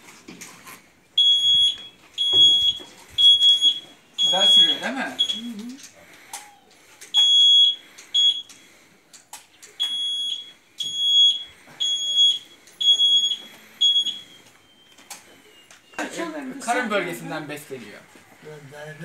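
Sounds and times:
reverse warning beeper: 1.2s - 5.8s, 7.2s - 8.7s, 9.8s - 15.7s.

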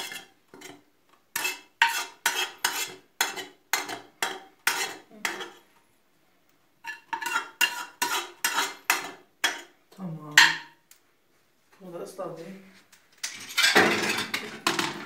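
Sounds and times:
metal spoon scraping metal pot: 0.0s - 5.6s, 6.8s - 9.7s.

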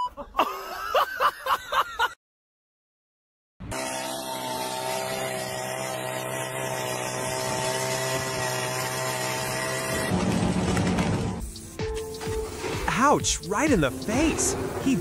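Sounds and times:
small petrol engine running: 3.7s - 11.7s.

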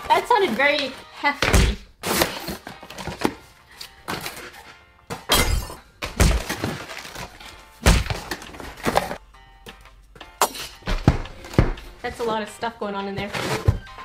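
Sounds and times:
cardboard packaging handled: 2.0s - 4.7s, 6.2s - 9.2s.

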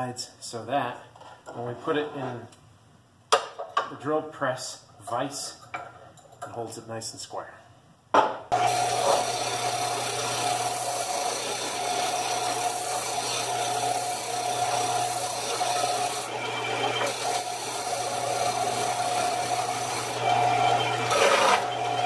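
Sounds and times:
belt sander motor humming: 8.6s - 22.0s
wood grinding on sanding belt: 8.6s - 22.0s.

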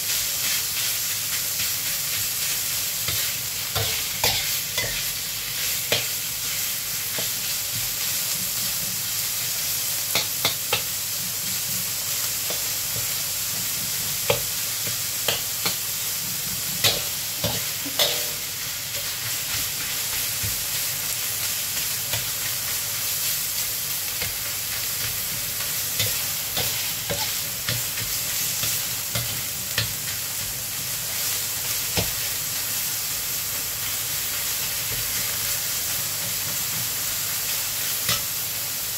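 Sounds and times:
meat sizzling in a wok: 0.0s - 38.9s
spatula scraping a wok: 0.1s - 8.8s, 10.1s - 20.9s, 24.2s - 30.5s.

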